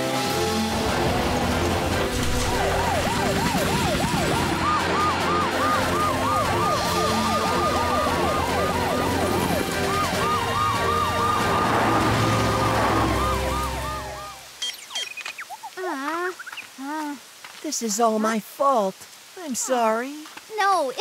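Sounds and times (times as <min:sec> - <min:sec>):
cartoon sirens wailing: 0:00.5 - 0:14.6.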